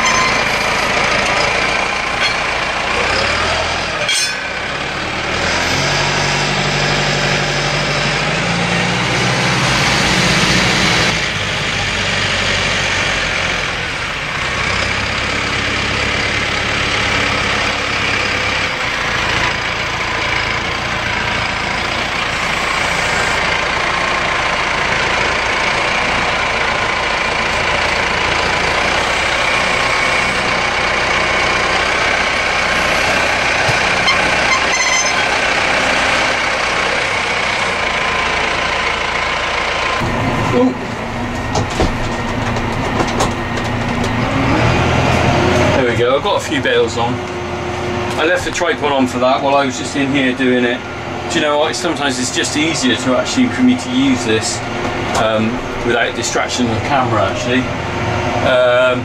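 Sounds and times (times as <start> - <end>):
steady whine: 0.0 - 3.0
tractor diesel engine running: 0.0 - 59.0.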